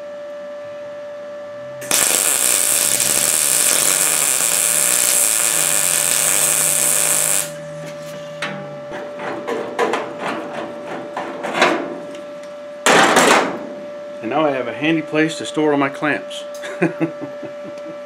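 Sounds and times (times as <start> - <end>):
welder arc crackling: 1.8 - 7.6.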